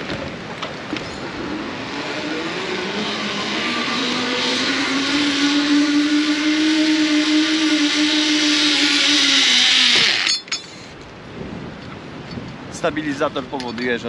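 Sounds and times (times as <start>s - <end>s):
zipline trolley humming on cable: 0.5s - 10.9s.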